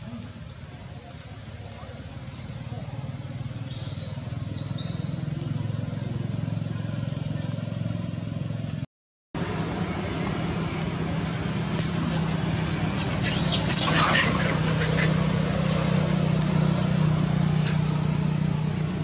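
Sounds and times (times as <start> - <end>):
low engine hum: 0.0 - 19.0
monkeys screeching: 12.9 - 15.9.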